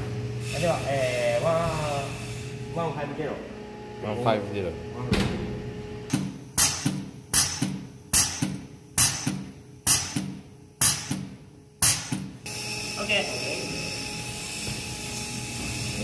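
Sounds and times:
hydraulic pump clacking and hissing: 6.1 - 12.4.

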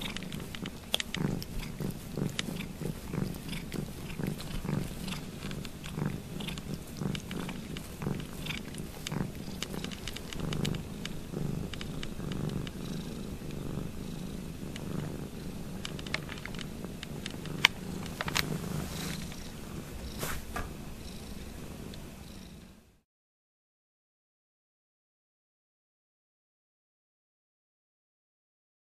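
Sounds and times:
sharp clicks: 0.0 - 1.6, 4.4 - 12.8, 15.8 - 18.5
cat purring: 0.0 - 23.0.

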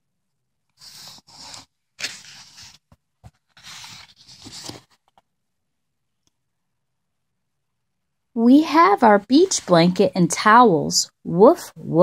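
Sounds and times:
paper page rustling and scraping: 0.7 - 5.2.

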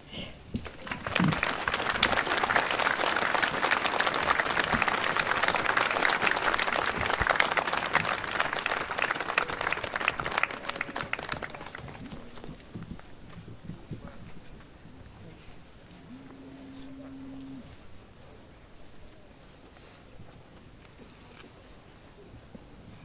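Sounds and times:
crowd applauding: 0.6 - 12.8.

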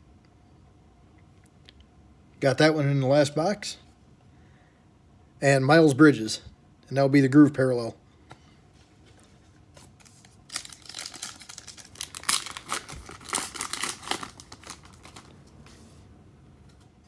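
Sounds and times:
foil wrapper tearing and crinkling: 10.0 - 15.3.

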